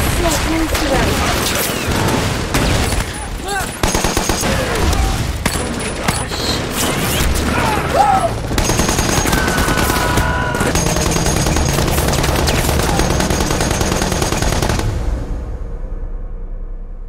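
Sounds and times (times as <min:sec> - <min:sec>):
rapid machine gun fire: 0:03.8 - 0:07.6, 0:08.4 - 0:15.1.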